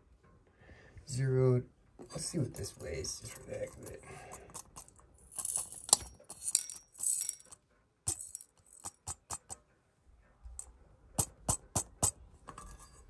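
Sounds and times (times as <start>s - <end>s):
gold pieces clinking into metal cup: 5.3s - 9.0s.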